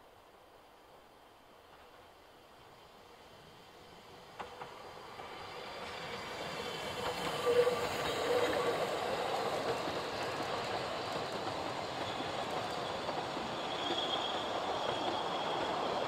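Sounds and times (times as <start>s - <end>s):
steam train running past: 1.6s - 16.0s
thin wheel squeal: 13.6s - 16.0s.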